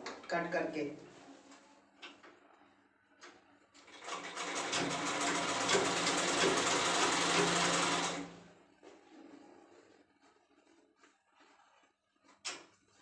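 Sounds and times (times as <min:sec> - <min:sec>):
sewing machine stitching: 0:03.9 - 0:08.4.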